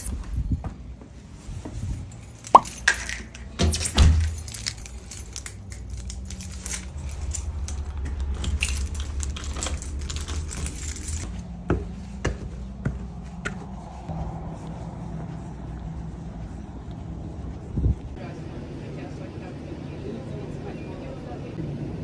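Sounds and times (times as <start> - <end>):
keyring jangling: 1.9 - 11.4
footsteps on concrete: 11.3 - 18.2.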